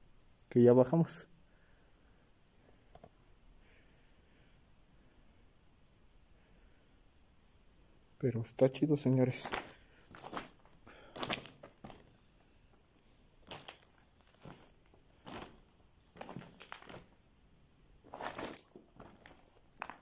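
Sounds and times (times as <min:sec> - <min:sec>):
footsteps crunching on rock and grit: 0:09.3 - 0:12.6, 0:13.2 - 0:17.2, 0:18.0 - 0:20.0.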